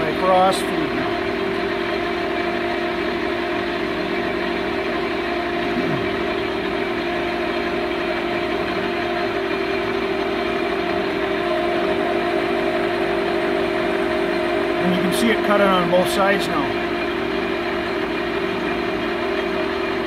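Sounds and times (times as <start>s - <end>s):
lathe running with hum and whine: 0.0s - 20.0s.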